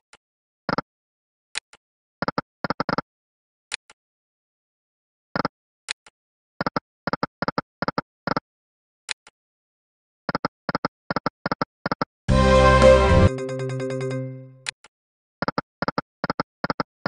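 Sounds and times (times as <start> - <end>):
slot game spin click: 12.3 - 14.6.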